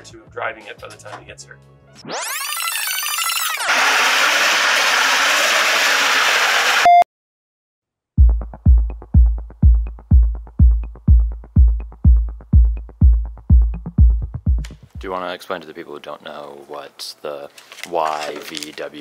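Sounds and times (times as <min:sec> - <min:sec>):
short beep: 0:06.8 - 0:07.1
electronic music with kick drum: 0:08.2 - 0:15.2.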